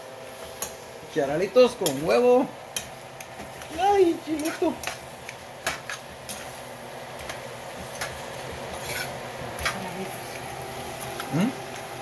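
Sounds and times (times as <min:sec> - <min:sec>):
metal spoon scraping a pan: 0:07.2 - 0:09.8.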